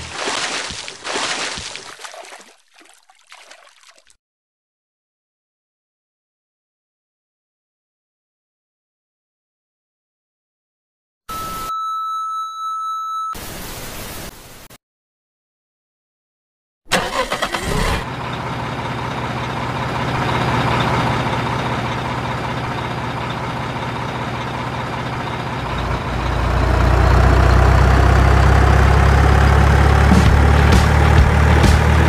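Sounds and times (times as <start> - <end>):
truck engine cranking and running: 16.9 - 32.0.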